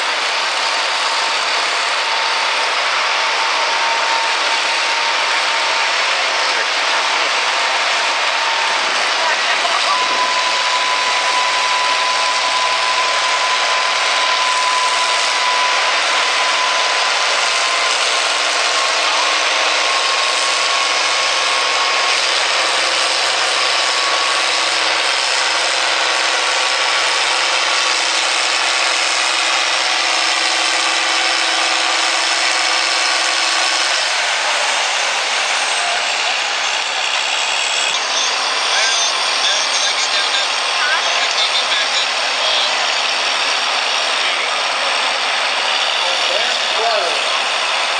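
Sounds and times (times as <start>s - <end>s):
tractor engine under load: 0.0s - 47.9s
turbo whistle: 8.3s - 22.0s, 29.4s - 43.1s.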